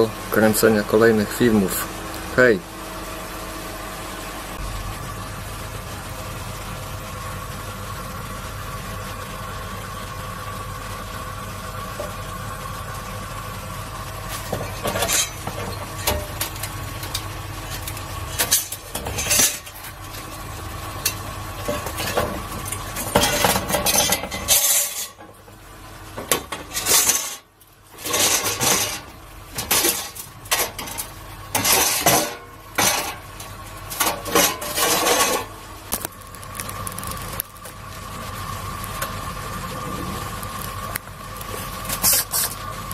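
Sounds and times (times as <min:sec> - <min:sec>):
steady machine hum: 0:00.0 - 0:42.9
metal pieces clinking and scraping: 0:14.3 - 0:20.0, 0:21.0 - 0:25.2, 0:26.5 - 0:27.4, 0:28.0 - 0:33.2.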